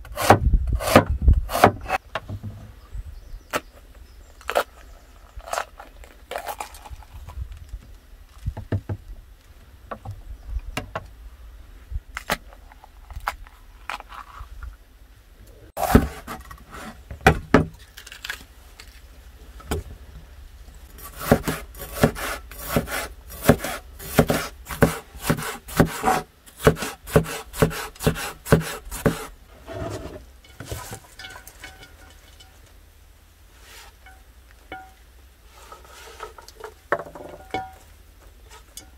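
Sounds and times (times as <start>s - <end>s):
knife chopping on wooden board: 21.2s - 29.3s.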